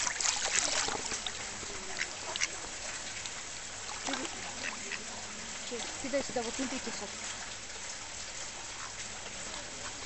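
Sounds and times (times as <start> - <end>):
ducks quacking: 0.0 - 3.0, 4.1 - 5.3
ducks splashing in water: 0.0 - 10.0.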